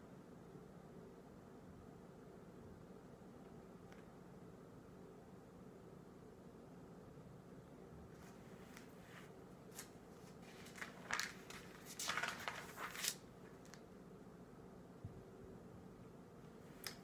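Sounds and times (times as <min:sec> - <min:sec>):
faint steady hum: 0:00.0 - 0:17.0
book pages turning: 0:08.2 - 0:13.8.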